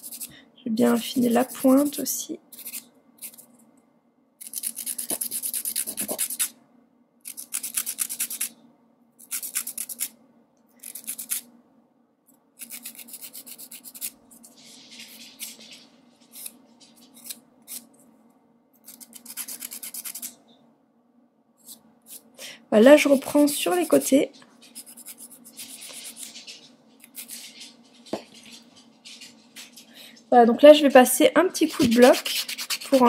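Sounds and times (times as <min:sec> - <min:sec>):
nail file rasping on fingernail: 0:02.5 - 0:03.4, 0:04.4 - 0:06.5, 0:07.3 - 0:08.5, 0:09.2 - 0:10.2, 0:10.8 - 0:11.5, 0:12.6 - 0:14.2, 0:18.8 - 0:20.4, 0:24.8 - 0:26.3, 0:31.7 - 0:33.0.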